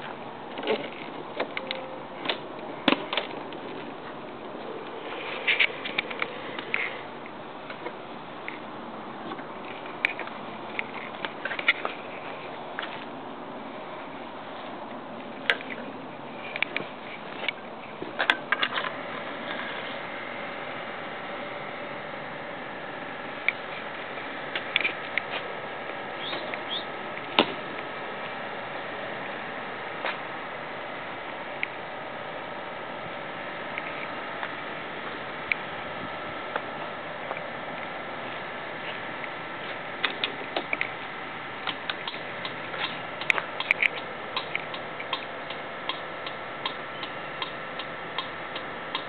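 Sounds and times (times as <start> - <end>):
steady hum: 0.0 - 49.0
irregular clicks: 41.6 - 49.0.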